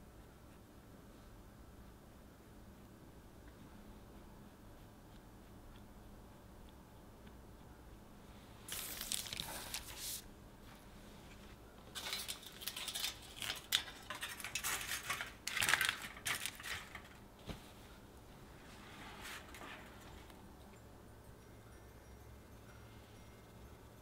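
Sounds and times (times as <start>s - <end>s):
aluminium foil crinkling: 8.7s - 10.2s, 11.9s - 17.2s.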